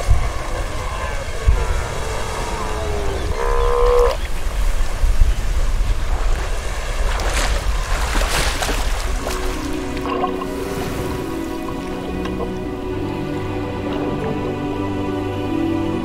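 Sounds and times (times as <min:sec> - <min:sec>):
sea lion roaring: 0:00.0 - 0:04.3
water splashing: 0:00.0 - 0:14.7
sea surf: 0:00.0 - 0:16.0
wind: 0:00.0 - 0:16.0.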